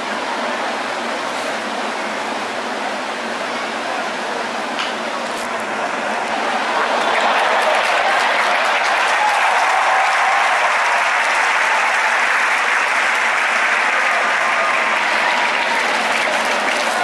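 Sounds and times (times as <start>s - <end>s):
crowd applauding and cheering: 5.5s - 17.0s.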